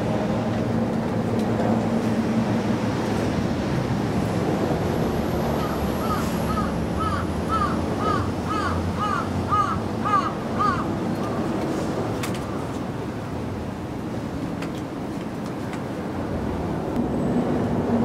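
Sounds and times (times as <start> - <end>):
crow cawing: 5.6 - 10.9.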